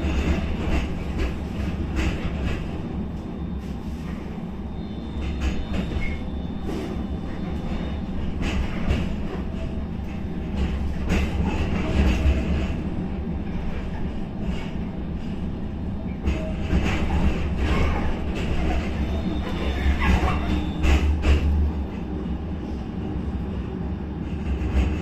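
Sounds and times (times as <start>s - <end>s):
tram running gear rumble: 0.0s - 25.0s
wheels clattering on rails: 0.0s - 25.0s.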